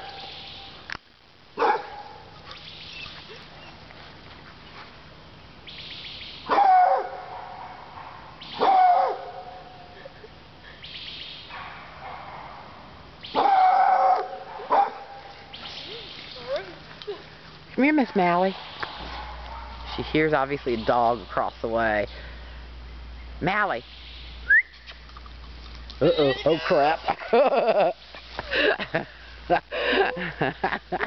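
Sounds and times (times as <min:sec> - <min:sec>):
dog barking loudly: 0:01.6 - 0:02.2, 0:06.5 - 0:09.7, 0:13.3 - 0:15.3.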